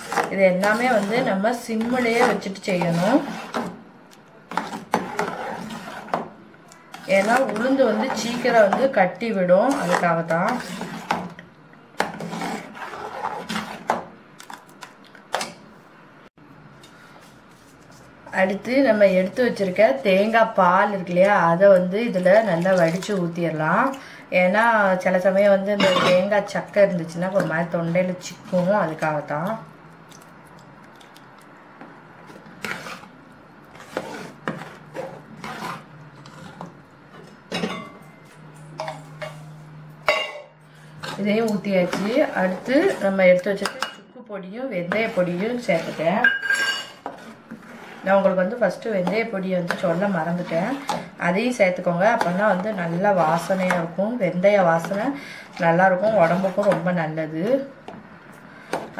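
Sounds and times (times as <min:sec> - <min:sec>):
ladle scraping pot: 0:00.0 - 0:03.8, 0:04.5 - 0:11.4, 0:12.0 - 0:14.6, 0:31.8 - 0:44.0, 0:44.8 - 0:57.1.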